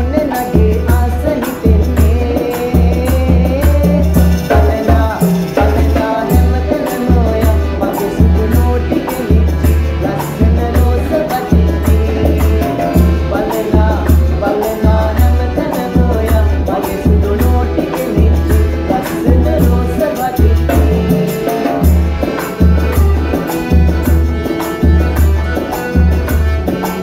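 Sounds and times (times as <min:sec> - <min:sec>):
men singing together: 0:00.0 - 0:22.6
hand drums: 0:00.0 - 0:27.0
piano accordion: 0:00.0 - 0:27.0
steady bass beat: 0:11.6 - 0:27.0.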